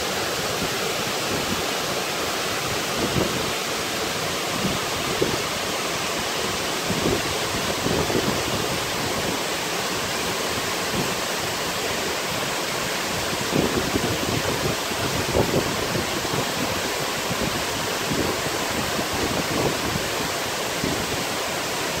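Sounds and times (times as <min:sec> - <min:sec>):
waterfall rushing: 0:00.0 - 0:22.0.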